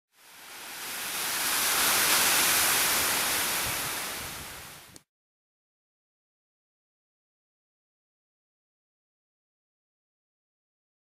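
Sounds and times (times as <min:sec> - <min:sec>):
surf breaking on pebble shore: 0:00.1 - 0:05.0.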